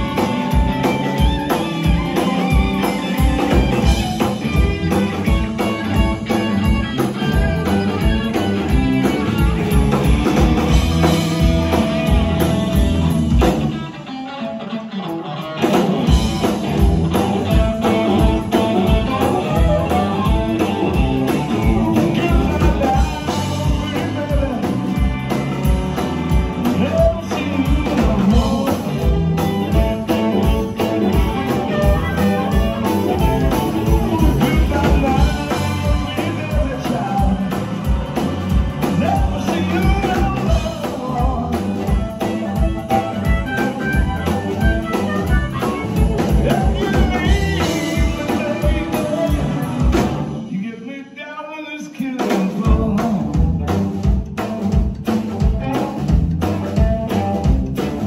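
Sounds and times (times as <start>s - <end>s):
harmonica: 0.0s - 13.3s, 28.4s - 50.3s
drum kit beat: 0.0s - 13.8s, 15.6s - 50.5s, 52.2s - 58.0s
bass guitar: 0.0s - 50.6s, 52.2s - 58.0s
electric guitars: 0.0s - 50.9s, 52.0s - 58.0s.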